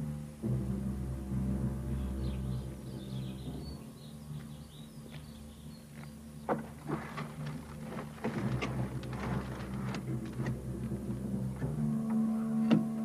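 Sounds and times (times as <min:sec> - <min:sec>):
low steady hum: 0:00.0 - 0:13.0
wood knocking and scraping: 0:05.9 - 0:12.9.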